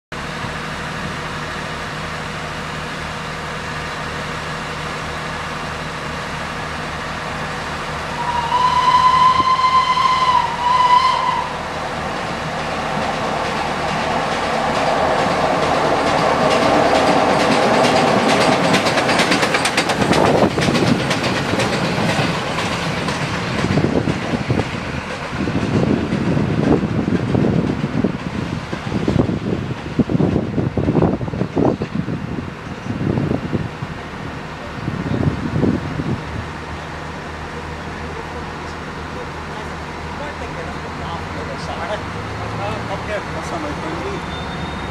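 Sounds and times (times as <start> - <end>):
diesel train idling: 0.1 - 44.9
steam locomotive whistle: 8.1 - 11.8, 44.2 - 44.9
wheels clattering over rail joints: 11.9 - 33.0.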